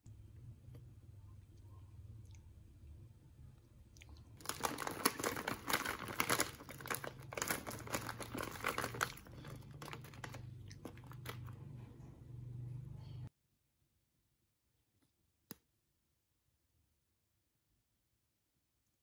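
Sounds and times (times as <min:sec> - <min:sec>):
plastic wrapper crinkling: 0:04.4 - 0:11.5.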